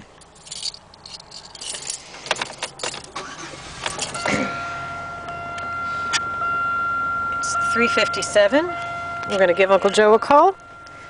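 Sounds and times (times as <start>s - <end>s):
car keys rattling: 0.0s - 4.6s
car engine starting and idling: 0.0s - 11.0s.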